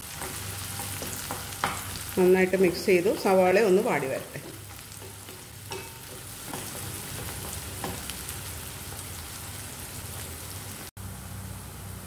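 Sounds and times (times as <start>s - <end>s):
onions sizzling in oil: 0.0s - 12.0s
wooden spatula knocking: 0.2s - 3.1s.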